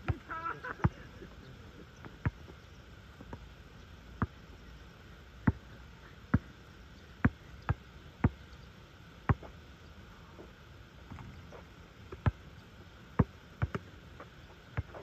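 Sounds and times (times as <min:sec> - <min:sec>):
basketball bouncing on asphalt: 0:02.0 - 0:02.6, 0:03.2 - 0:03.5, 0:04.2 - 0:04.4, 0:05.4 - 0:05.7, 0:06.3 - 0:06.6, 0:07.2 - 0:08.4, 0:09.2 - 0:09.6, 0:12.1 - 0:12.4, 0:13.1 - 0:15.0.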